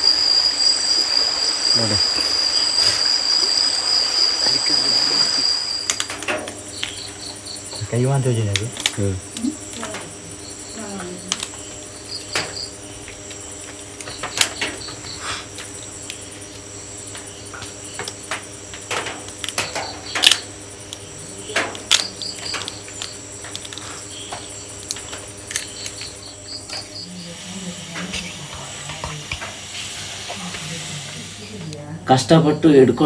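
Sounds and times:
crickets chirping: 0.0 - 33.0
crab shells cracking: 5.8 - 7.0, 8.5 - 10.1, 11.3 - 11.7, 15.6 - 27.0.

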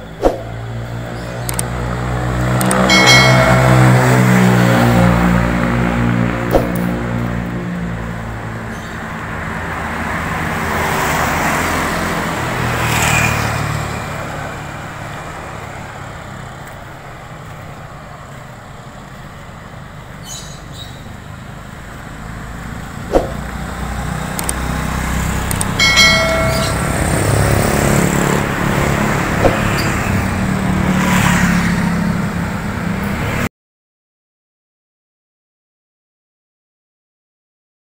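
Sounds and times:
motorbikes and cars passing: 0.0 - 33.5
sharp click: 1.4 - 1.7, 2.6 - 2.8, 24.3 - 24.6
short high tone: 2.9 - 4.6, 25.8 - 27.6.

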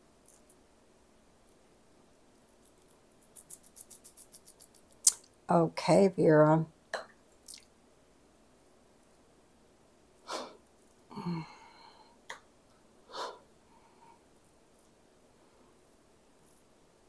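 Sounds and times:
short breaths or sniffs: 10.2 - 10.6, 13.1 - 14.2.

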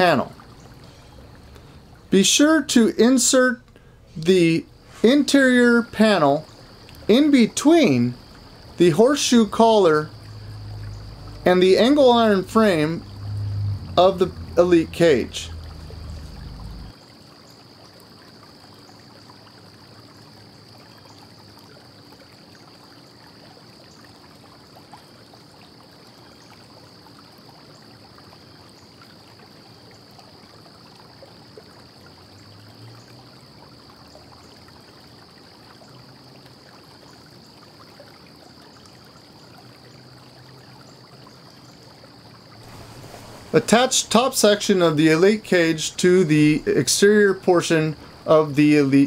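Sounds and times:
steady background hiss: 0.0 - 21.5, 28.4 - 49.0
faint high-pitched whine: 42.6 - 49.0.

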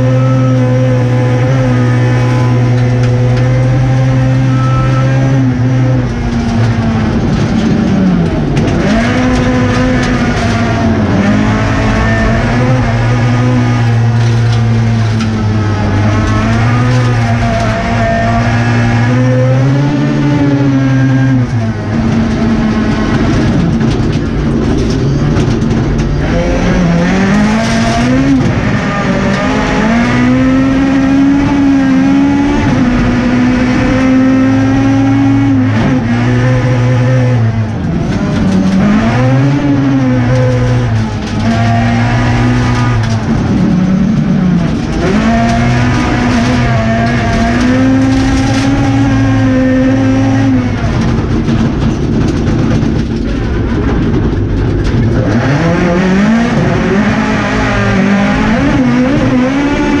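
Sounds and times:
rally car engine revving: 0.0 - 60.0.

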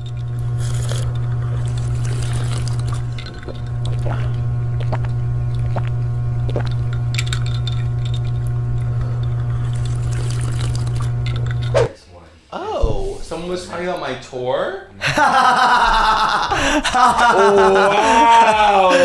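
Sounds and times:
slurping through a straw: 0.0 - 11.9
steady low hum: 0.0 - 19.0.

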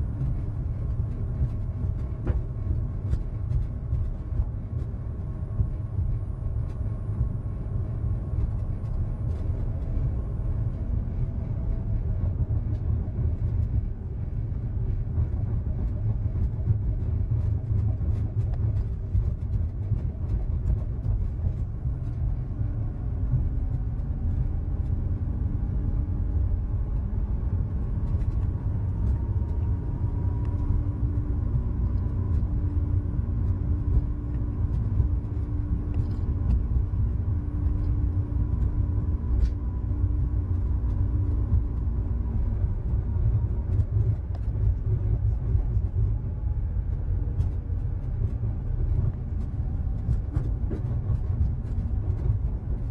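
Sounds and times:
faint steady hum: 0.0 - 52.9
tyres rumbling on track: 0.0 - 52.9
faint clicks and rattles: 0.1 - 7.4, 8.1 - 52.9.

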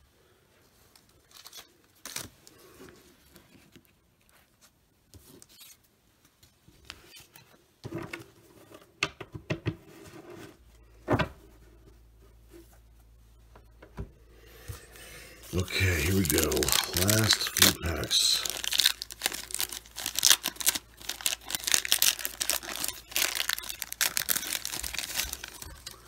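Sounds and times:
rustling card packs: 14.4 - 26.0.

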